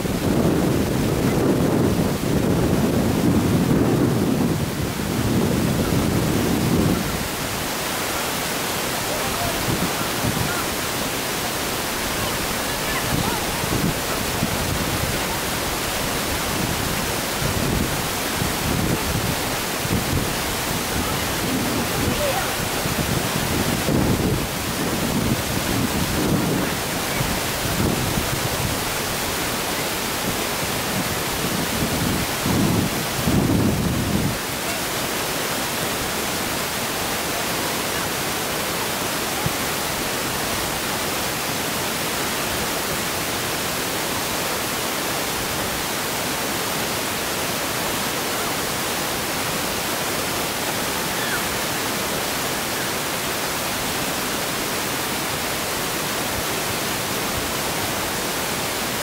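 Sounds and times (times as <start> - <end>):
wind buffeting microphone: 0.0 - 7.4, 11.8 - 34.5
steady loud hiss: 0.0 - 59.0.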